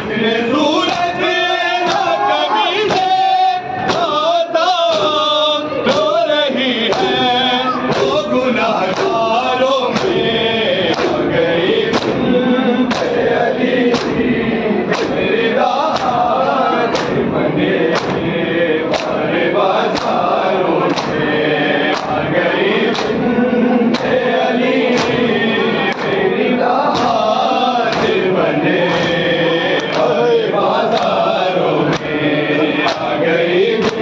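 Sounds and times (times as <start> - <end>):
men chanting in chorus: 0.0 - 34.0
hands slapping chests: 1.8 - 2.2, 8.9 - 9.2, 10.9 - 11.2, 11.9 - 12.2, 12.9 - 13.3, 13.9 - 14.2, 14.9 - 15.2, 15.9 - 16.2, 16.9 - 17.3, 17.9 - 18.3, 18.9 - 20.2, 20.8 - 23.3, 23.9 - 24.2, 24.9 - 25.2, 25.9 - 26.2, 26.9 - 30.2, 30.9 - 31.2, 31.9 - 32.2, 32.8 - 33.2, 33.8 - 34.0.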